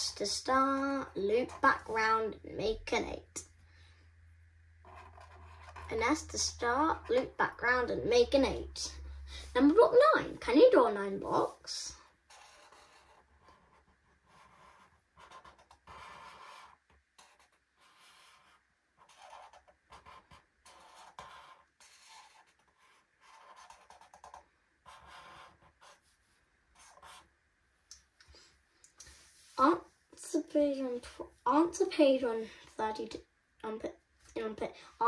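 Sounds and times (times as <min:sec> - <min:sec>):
marker scratching on paper: 0:00.1 - 0:02.3, 0:04.8 - 0:08.6, 0:11.4 - 0:27.3.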